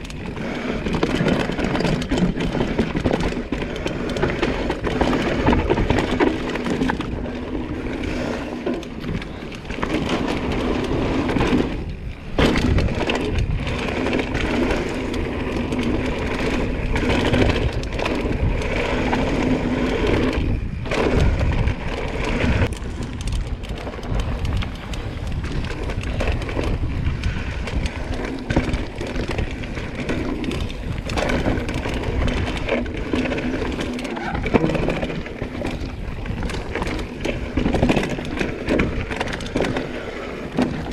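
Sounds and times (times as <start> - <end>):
bike clattering over roots: 0.0 - 40.9
bike tyres rushing on dirt: 0.0 - 40.9.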